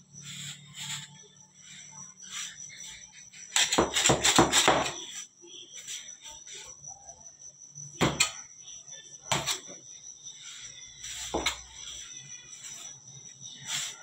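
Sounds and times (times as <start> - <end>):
metal scraper knocking on steel table: 3.6 - 5.0, 8.0 - 8.4, 11.3 - 11.6.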